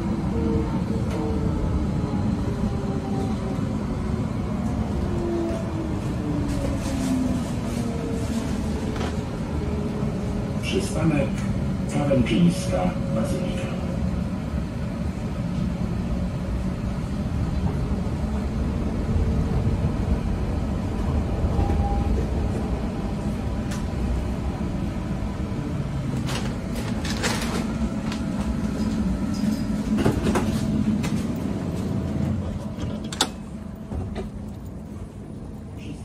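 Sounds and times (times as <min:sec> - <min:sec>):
tram interior rumble: 0:00.0 - 0:36.0.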